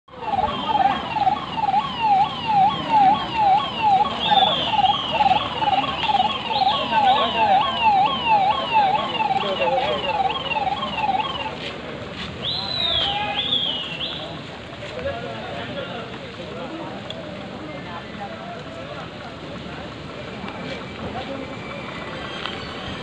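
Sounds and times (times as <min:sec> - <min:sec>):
electronic siren yelping: 0:00.1 - 0:11.6.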